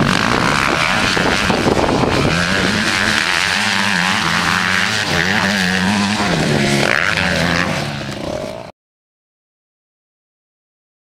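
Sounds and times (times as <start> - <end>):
motorbike engine running: 0.0 - 8.7.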